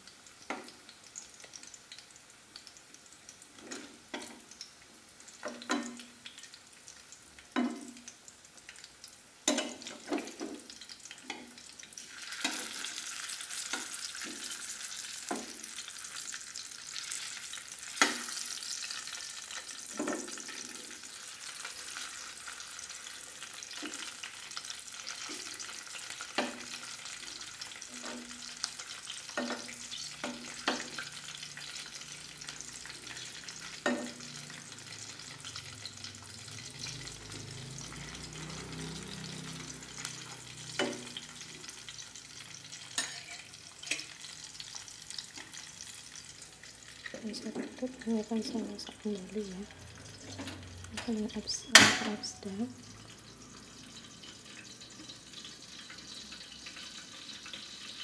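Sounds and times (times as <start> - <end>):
chicken frying in hot oil: 0.0 - 58.0
metal spatula scraping pan: 27.7 - 31.1, 42.9 - 44.2.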